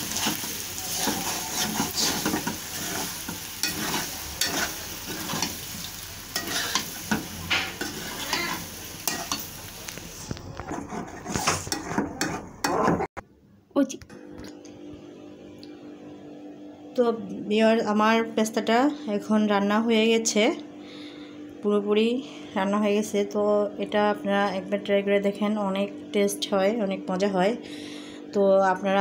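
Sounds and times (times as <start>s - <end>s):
metal spoon scraping a pan: 0.0s - 9.6s, 10.5s - 13.1s
pasta sizzling in a metal pan: 0.0s - 10.7s.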